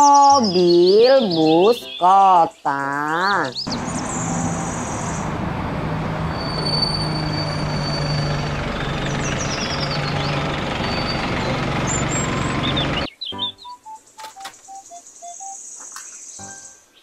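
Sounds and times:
road noise: 3.3 - 13.1
bus engine humming: 3.6 - 13.1
faint high squeaks: 6.3 - 8.5.

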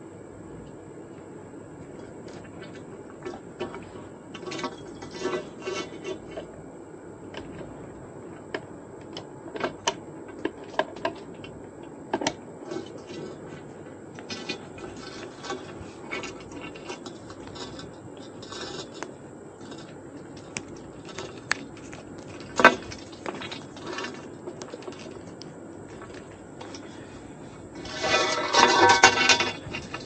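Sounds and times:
hands clicking cable fittings: 20.4 - 22.4.

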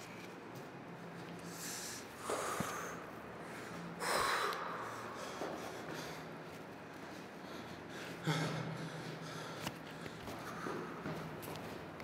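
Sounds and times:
person breathing out heavily: 1.5 - 6.4.

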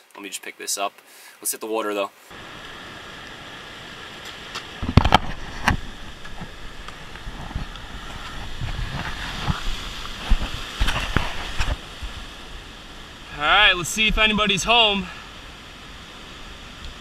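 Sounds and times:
ocean surf washing around rock: 2.3 - 17.0
wind buffeting microphone: 4.4 - 14.9.

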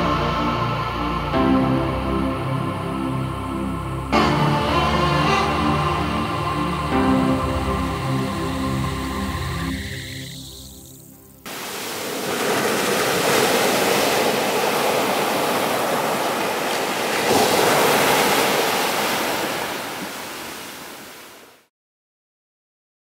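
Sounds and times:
waves breaking on beach: 11.5 - 21.7.

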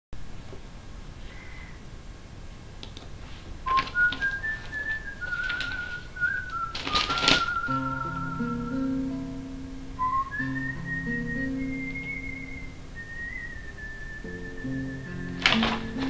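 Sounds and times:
short rustling: 2.8 - 8.9, 10.0 - 16.0
whistled tune: 3.6 - 16.0
low sustained accompaniment notes: 3.7 - 16.0.

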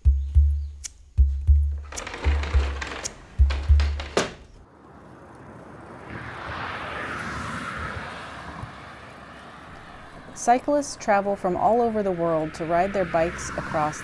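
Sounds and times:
background music beats: 0.0 - 4.6
sliding window clacking open: 1.7 - 4.6.

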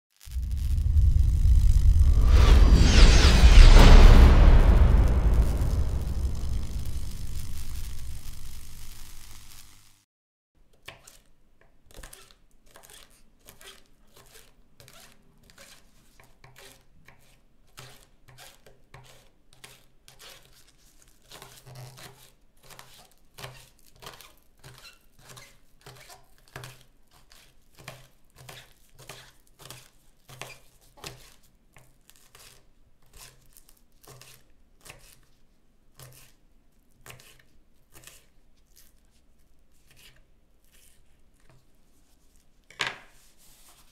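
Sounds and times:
knife slicing green onions: 32.2 - 35.3, 36.0 - 36.4, 37.0 - 39.0.

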